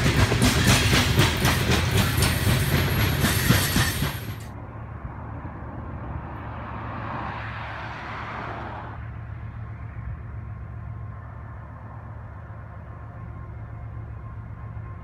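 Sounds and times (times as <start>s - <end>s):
distant locomotive engine drone: 0.0s - 15.0s.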